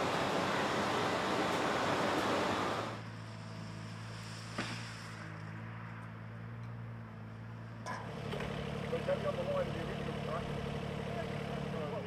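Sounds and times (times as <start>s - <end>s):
excavator diesel engine running: 0.0s - 3.0s.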